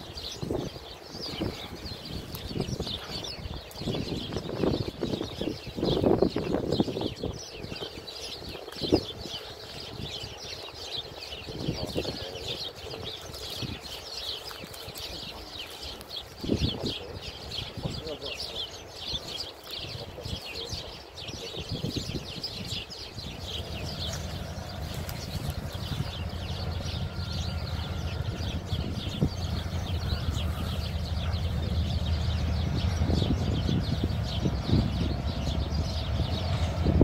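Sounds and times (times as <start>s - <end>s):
birds chirping: 0.0s - 37.0s
diesel locomotive engine drone: 23.3s - 37.0s.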